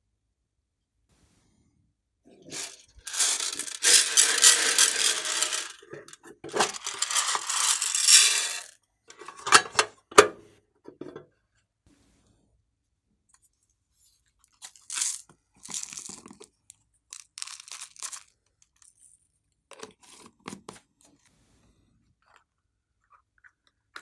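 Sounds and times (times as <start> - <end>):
beads rattling out of tin box: 2.5 - 8.7, 14.8 - 16.2, 17.1 - 18.3.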